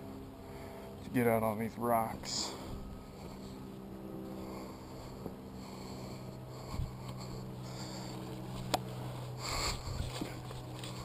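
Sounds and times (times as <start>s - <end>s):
low hum: 0.0s - 11.0s
footsteps on loose rocks: 6.8s - 11.0s.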